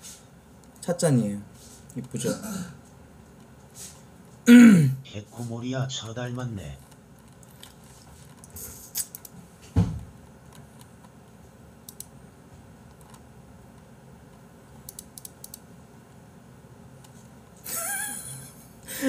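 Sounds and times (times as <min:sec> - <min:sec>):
computer mouse clicking: 0:06.8 - 0:09.4, 0:10.4 - 0:11.2, 0:11.8 - 0:12.2, 0:12.9 - 0:15.7.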